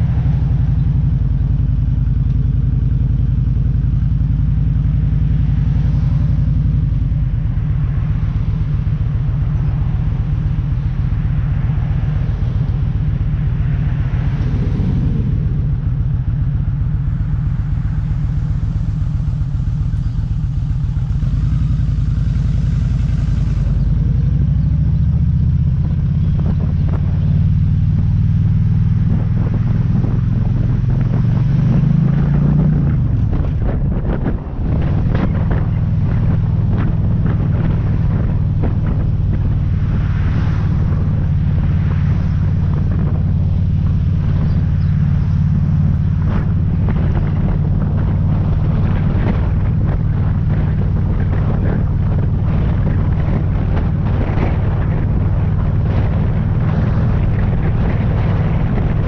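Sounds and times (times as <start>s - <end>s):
motorcycle engine running: 0.0s - 59.0s
road and wind noise: 0.0s - 59.0s.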